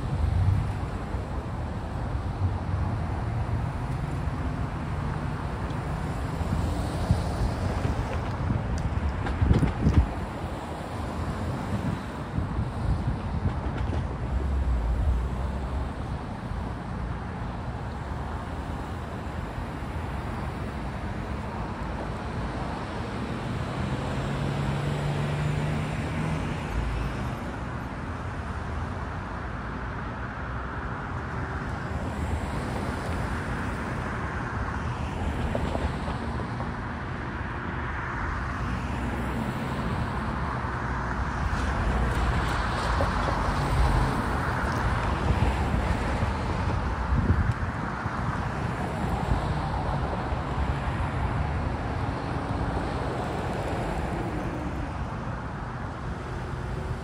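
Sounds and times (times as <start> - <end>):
car engines: 0.0 - 57.0
tyre noise from passing vehicles: 0.0 - 57.0.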